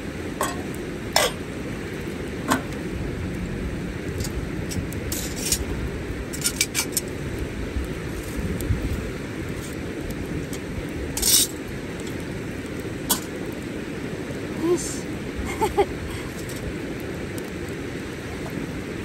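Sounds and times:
metal tongs clinking on grill: 0.4 - 1.4, 6.4 - 7.1, 11.2 - 11.5, 13.1 - 13.3.

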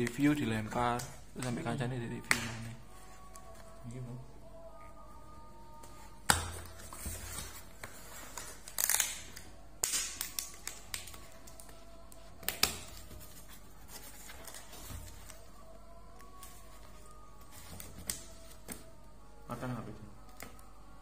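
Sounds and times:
packing tape being torn: 6.4 - 13.1, 14.2 - 18.9.

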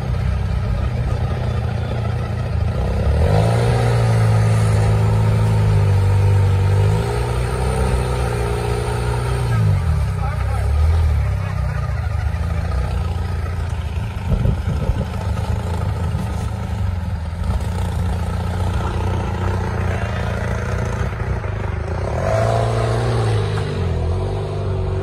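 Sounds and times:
buggy engine running at low revs: 0.0 - 25.0
engine revving up: 1.8 - 11.6, 17.4 - 25.0.

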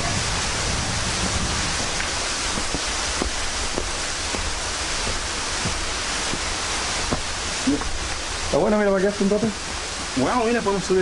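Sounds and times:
waterfall rushing: 0.0 - 11.0
footsteps on loose stones: 1.7 - 8.3.

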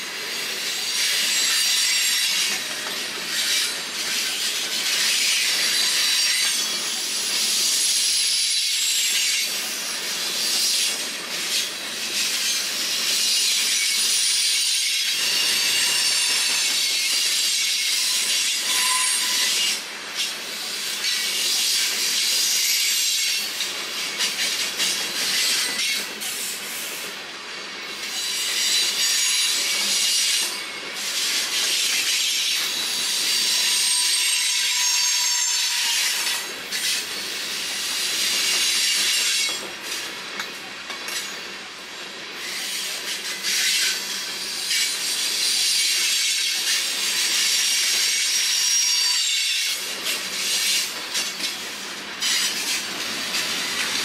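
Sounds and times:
railroad cars rolling on rails: 0.0 - 54.0
steel wheels squealing: 11.6 - 26.5, 27.9 - 39.7, 42.4 - 54.0.

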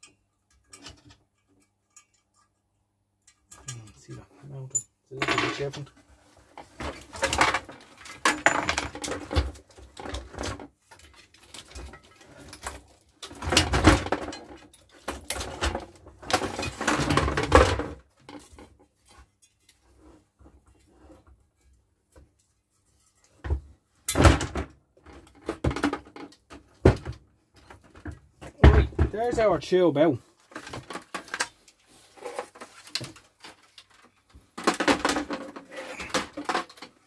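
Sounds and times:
monitor parts clattering: 30.4 - 37.0.

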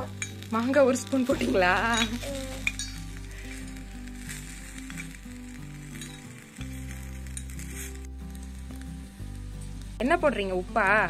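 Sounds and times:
background music: 0.0 - 11.0
food sizzling in oil: 0.0 - 11.0
steel spoon scraping a pot: 1.4 - 8.1.

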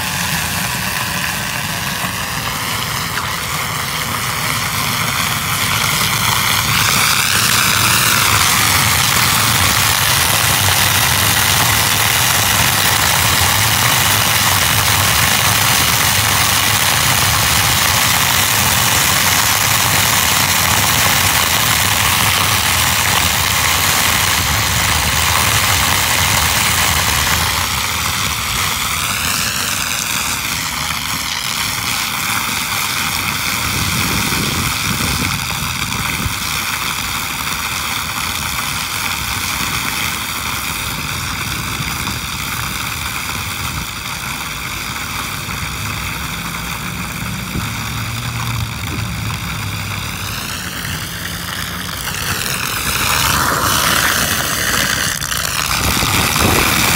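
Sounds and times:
water rushing down roof drain: 0.0 - 56.9.

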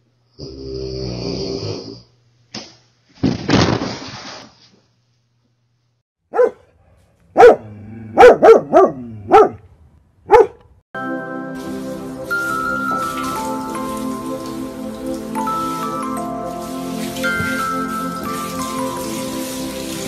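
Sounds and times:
dog barking: 6.3 - 9.6, 10.3 - 10.7.

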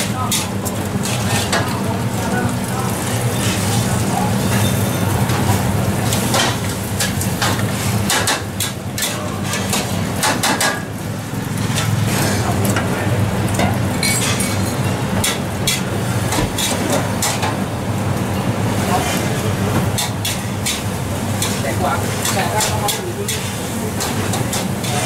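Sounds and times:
gas burner hum: 0.0 - 25.0
metal spatulas scraping woks: 20.0 - 25.0.

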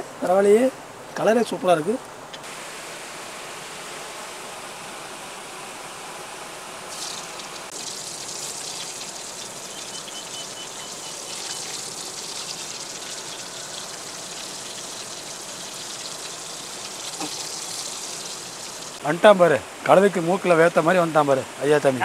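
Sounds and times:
meatballs sizzling in hot oil: 6.9 - 19.0.

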